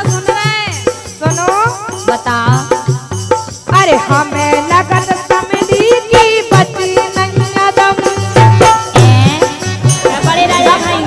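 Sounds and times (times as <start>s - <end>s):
rattling percussion: 0.0s - 11.0s
regular drum beat: 0.0s - 11.0s
woman singing folk song: 3.7s - 11.0s.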